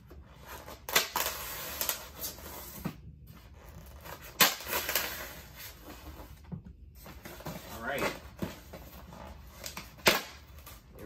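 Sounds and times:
polystyrene foam scraping: 0.3 - 2.8.

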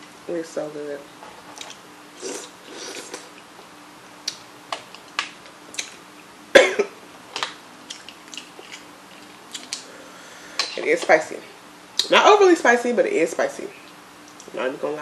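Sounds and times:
mouth eating sound: 2.2 - 3.4.

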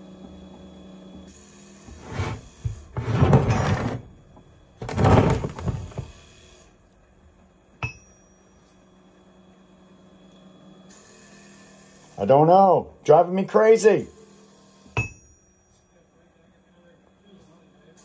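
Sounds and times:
handling noise: 2.0 - 6.2
metallic clink with ringing: 7.8 - 8.8, 15.0 - 16.2.

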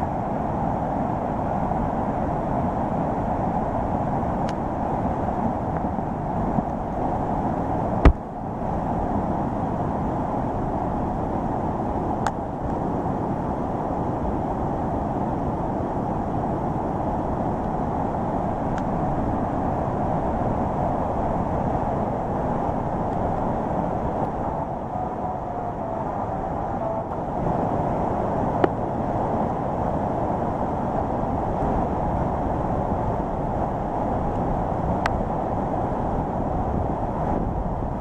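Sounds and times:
heavy rain: 9.8 - 38.0.

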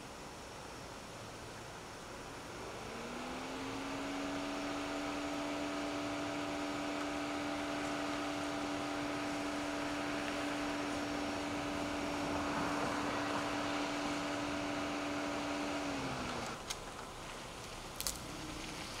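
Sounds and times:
machine hum: 1.8 - 16.6.

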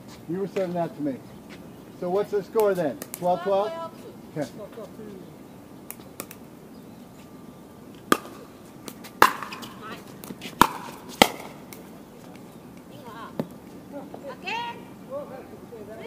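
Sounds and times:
paddle hitting plastic ball: 8.1 - 11.8.

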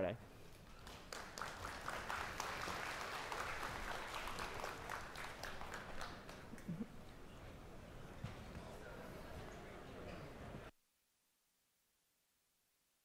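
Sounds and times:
audience applauding: 0.7 - 7.2.

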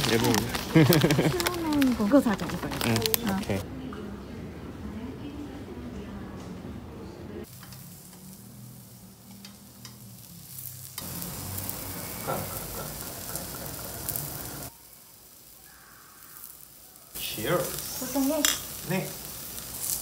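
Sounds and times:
fish sizzling on a griddle: 0.0 - 3.2, 7.4 - 20.0.

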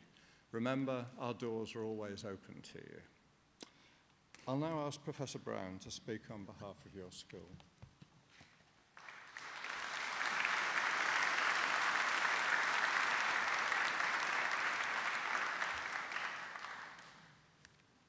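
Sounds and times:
audience applauding: 9.0 - 17.3.

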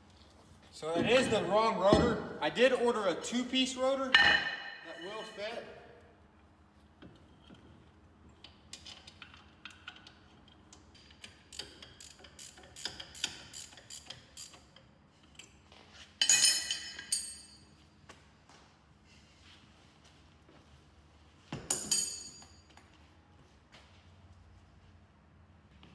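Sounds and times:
hand tools clinking and rattling: 16.2 - 17.6, 21.6 - 22.8.

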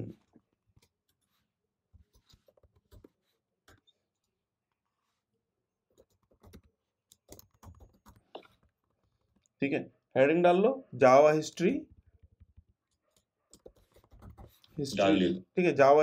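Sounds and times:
faint keyboard typing: 2.0 - 4.3, 5.9 - 9.6, 11.7 - 14.9.

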